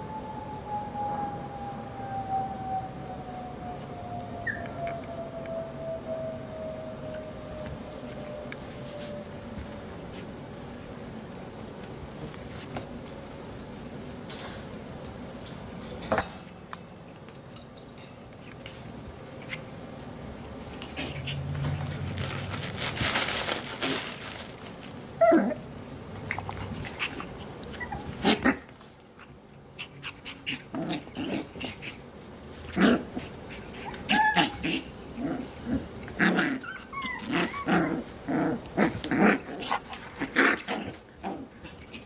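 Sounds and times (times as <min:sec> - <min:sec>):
puppies growling and yipping: 0:04.3 - 0:04.8, 0:20.7 - 0:22.6, 0:25.2 - 0:25.6, 0:26.2 - 0:42.0
puppies scuffling: 0:18.3 - 0:25.6.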